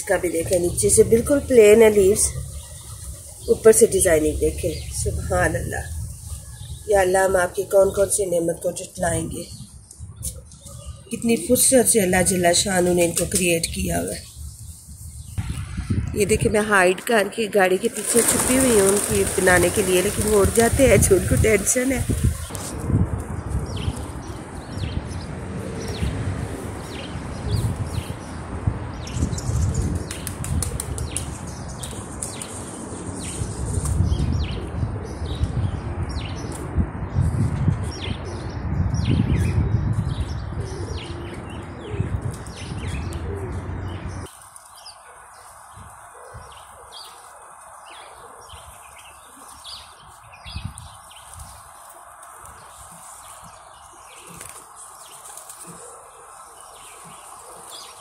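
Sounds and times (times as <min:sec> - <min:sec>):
heavy low rumble: 0:15.4 - 0:17.8
pigeon wings fluttering: 0:17.9 - 0:22.9, 0:29.8 - 0:33.1, 0:54.2 - 0:55.8.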